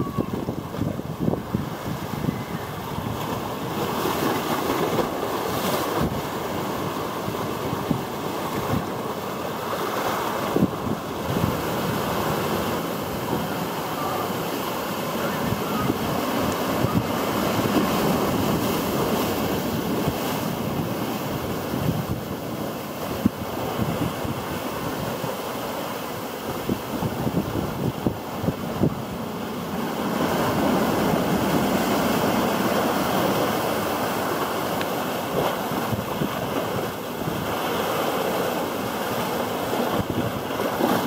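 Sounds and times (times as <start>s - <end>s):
wind buffeting microphone: 0.0s - 5.1s, 15.1s - 25.3s, 26.5s - 37.8s, 39.1s - 41.0s
sea waves breaking: 0.0s - 41.0s.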